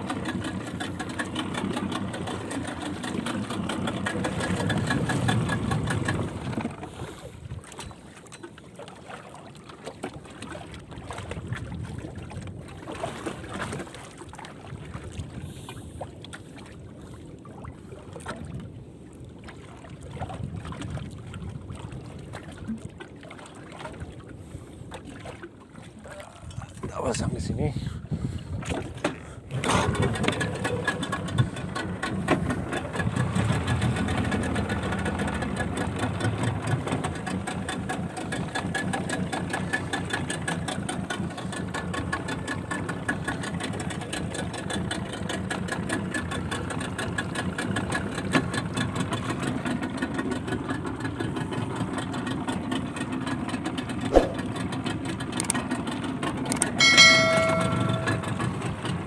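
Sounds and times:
small boat engine running: 0.0s - 59.0s
sharp knock: 54.1s - 54.5s
brief high tone: 56.8s - 58.7s.

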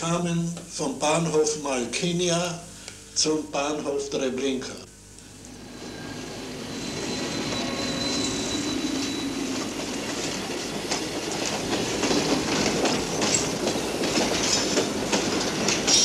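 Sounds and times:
high wheel squeal: 5.4s - 11.4s
train wheels clacking over rail joints: 8.7s - 16.0s.

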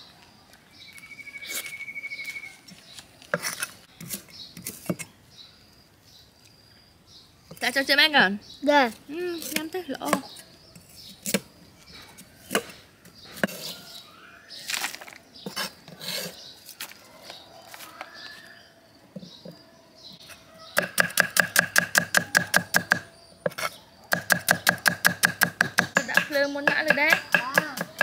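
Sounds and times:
knife chopping on wooden board: 20.8s - 28.0s.

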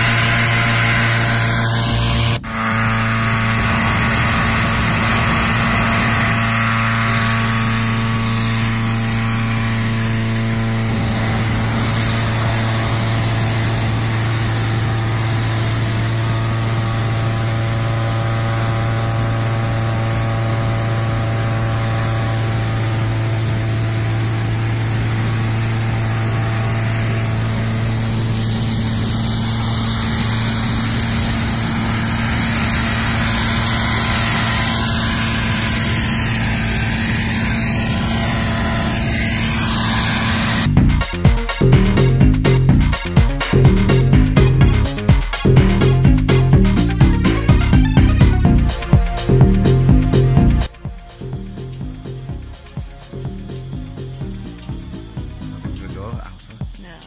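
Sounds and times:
propane burner firing: 0.0s - 40.8s, 45.4s - 57.0s
inflator fan blowing air: 0.0s - 57.0s.

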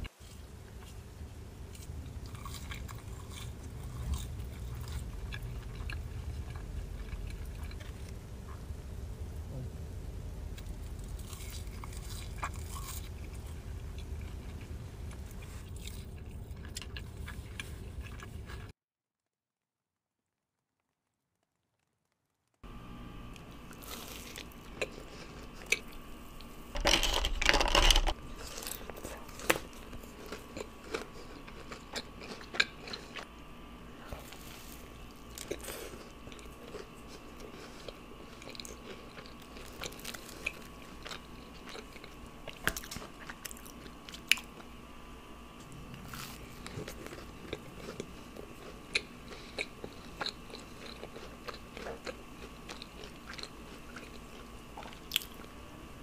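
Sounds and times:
faint steady hum: 0.0s - 18.7s, 22.6s - 56.0s
chewing with wet mouth clicks: 1.8s - 8.2s, 28.5s - 33.3s, 35.1s - 44.7s, 45.6s - 55.6s.

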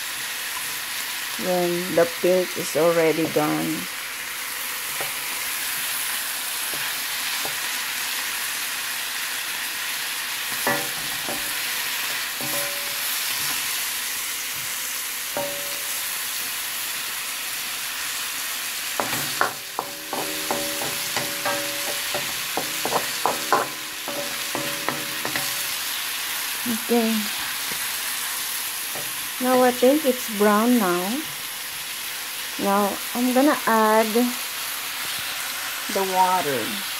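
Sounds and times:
chicken and onion sizzling in pan: 0.0s - 36.9s
wooden spoon knocking on metal pan: 10.5s - 11.6s, 12.4s - 13.6s, 15.4s - 16.0s, 19.0s - 25.9s.

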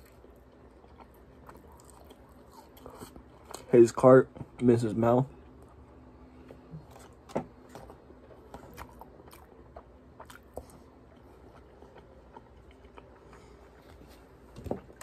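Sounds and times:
person chewing food: 0.0s - 4.6s, 5.3s - 15.0s.

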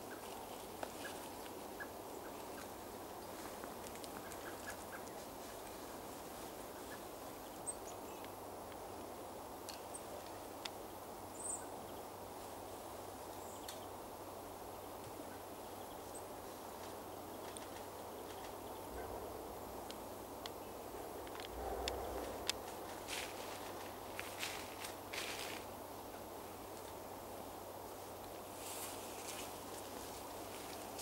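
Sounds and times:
low rumbling background: 18.5s - 24.2s.

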